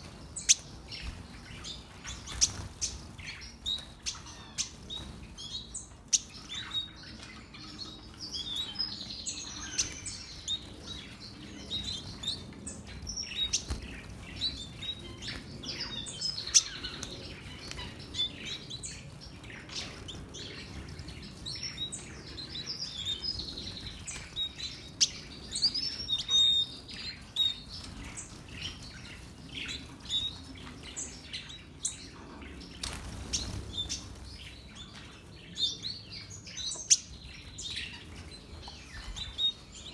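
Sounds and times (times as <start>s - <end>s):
wings fluttering: 0.0s - 5.6s, 9.5s - 21.8s, 32.8s - 34.6s
birds chirping: 0.0s - 39.9s.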